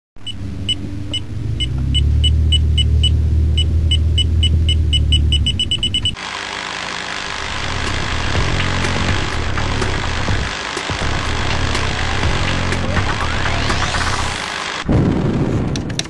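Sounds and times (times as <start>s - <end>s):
high countdown ticks: 0.2s - 6.2s
low rumble: 0.2s - 6.2s.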